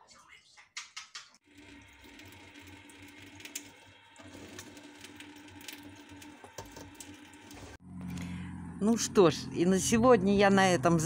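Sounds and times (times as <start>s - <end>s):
tap water trickling and splashing: 1.4s - 7.8s
steady low hum: 7.8s - 11.0s.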